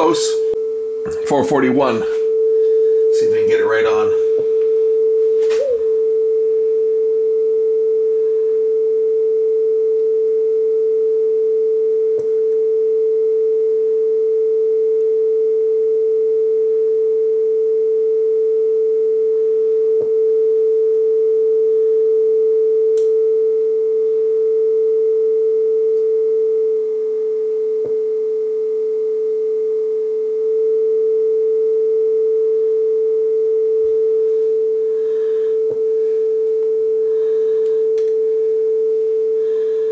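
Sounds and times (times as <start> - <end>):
steady test tone: 0.0 - 9.0.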